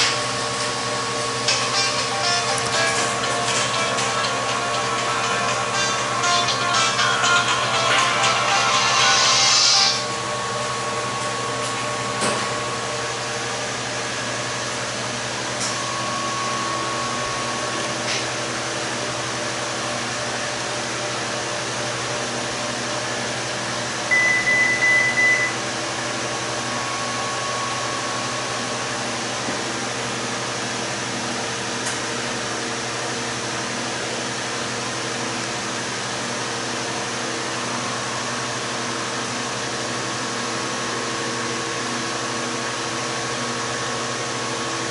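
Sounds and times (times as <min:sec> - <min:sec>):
machine hum: 0:00.0 - 0:44.9
high beeps: 0:24.1 - 0:25.6.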